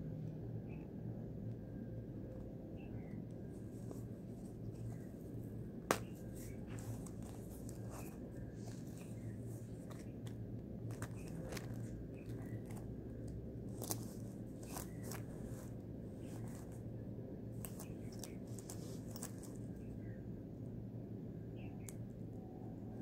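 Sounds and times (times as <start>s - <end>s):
steady low hum: 0.0s - 23.0s
rustling of case: 5.9s - 16.8s, 17.6s - 19.8s.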